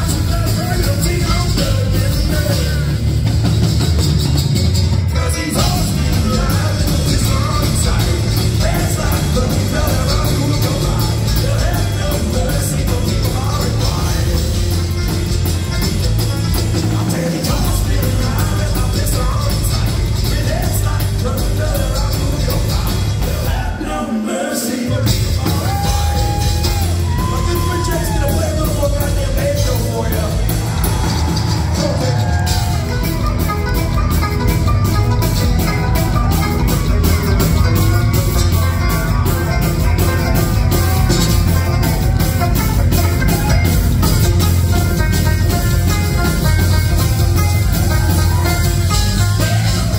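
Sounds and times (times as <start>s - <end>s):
person singing: 0.0s - 3.1s, 5.0s - 15.2s, 16.6s - 34.2s, 44.8s - 49.9s
live band playing loud: 0.0s - 49.9s.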